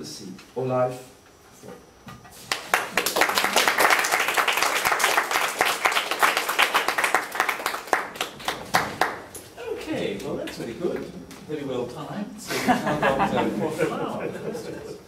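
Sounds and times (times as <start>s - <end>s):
audience applauding: 2.5s - 9.3s.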